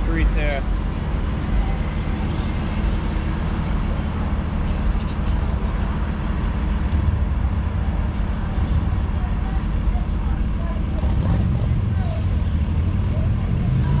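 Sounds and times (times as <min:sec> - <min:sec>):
cars passing: 0:00.0 - 0:14.0
engine and tyre noise: 0:00.0 - 0:14.0
heavy low rumble: 0:00.0 - 0:14.0.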